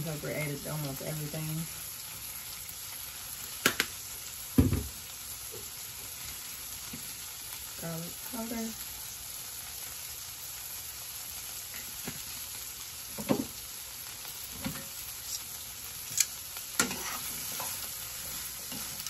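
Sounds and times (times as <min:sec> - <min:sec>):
vegetables sizzling in a pan: 0:00.0 - 0:19.0
utensils clicking against pan: 0:16.1 - 0:17.8.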